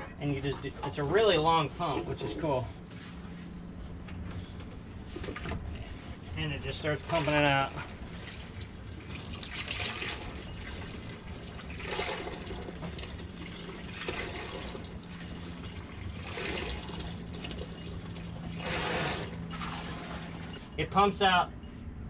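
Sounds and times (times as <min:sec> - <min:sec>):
hand bilge pump strokes: 0:00.0 - 0:03.3, 0:18.5 - 0:20.8
water gushing into metal sink: 0:06.8 - 0:20.5.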